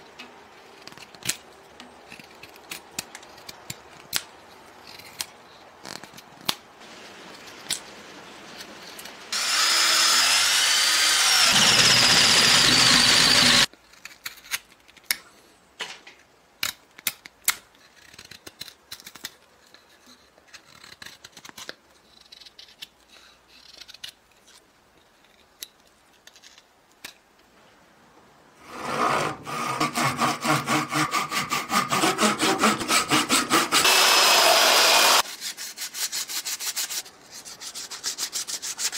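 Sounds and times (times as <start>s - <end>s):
belt sander grinding wood: 9.3s - 13.7s, 28.6s - 35.2s
power tool running: 9.4s - 13.7s, 33.7s - 35.2s.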